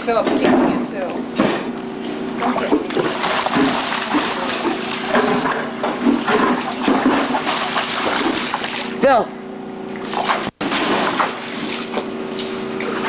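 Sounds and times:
child splashing through water: 0:02.4 - 0:09.0, 0:10.0 - 0:13.0.

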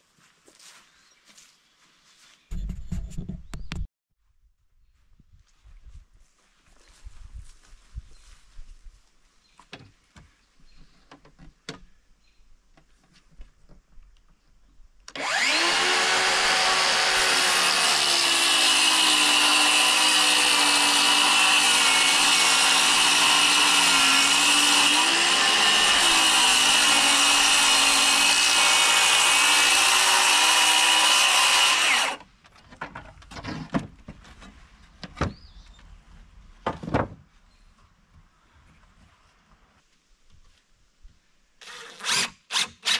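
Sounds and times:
circular saw cutting plywood: 0:15.1 - 0:32.2.

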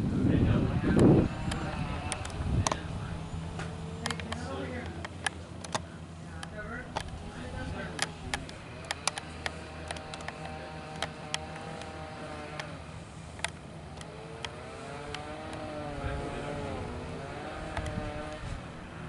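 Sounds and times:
motor running wavering pitch: 0:00.0 - 0:19.0
sharp clicks: 0:00.9 - 0:02.9, 0:03.5 - 0:07.2, 0:07.8 - 0:15.9, 0:17.7 - 0:18.5.

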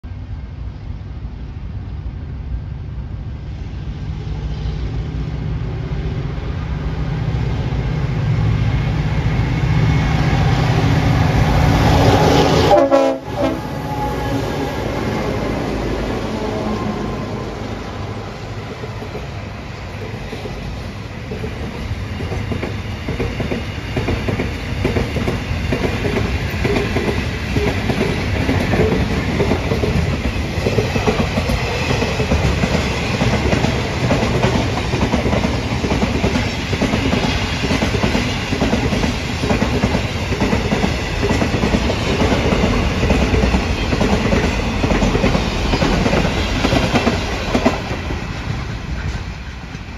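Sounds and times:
train wheels clattering over rail joints: 0:20.3 - 0:49.9.

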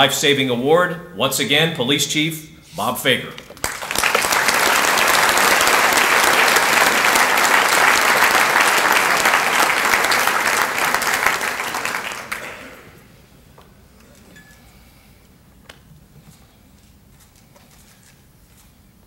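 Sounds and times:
audience applauding: 0:03.5 - 0:13.0.

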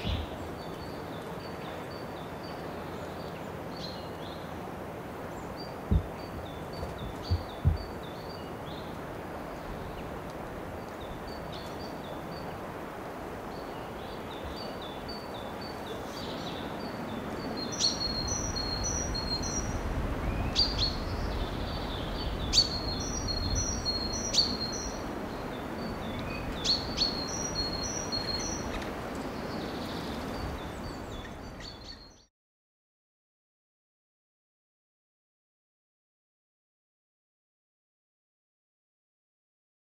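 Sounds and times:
small birds singing: 0:00.0 - 0:10.2, 0:10.8 - 0:32.3.

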